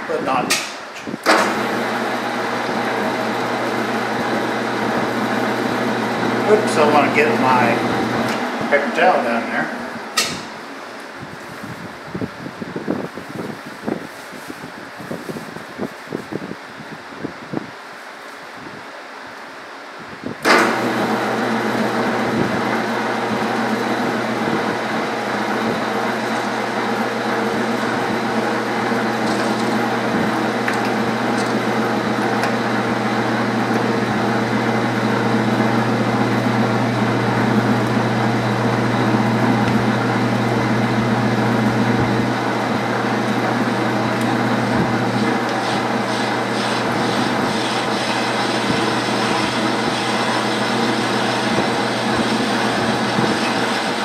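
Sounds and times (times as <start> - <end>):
metal lathe humming: 1.4 - 8.8, 20.6 - 54.0.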